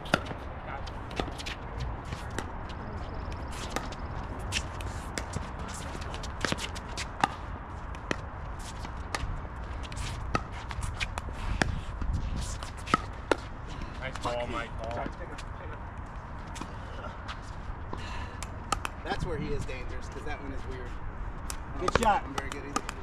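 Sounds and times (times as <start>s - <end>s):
shoes scuffing on hard court: 3.0s - 13.5s
paddles hitting plastic ball: 21.5s - 23.0s.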